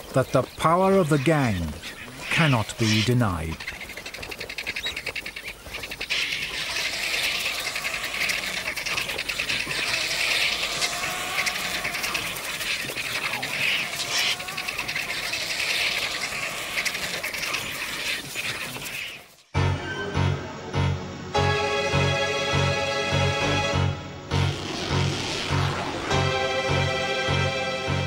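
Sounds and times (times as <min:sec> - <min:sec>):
vultures hissing and chattering: 0:00.0 - 0:19.5, 0:24.5 - 0:26.3.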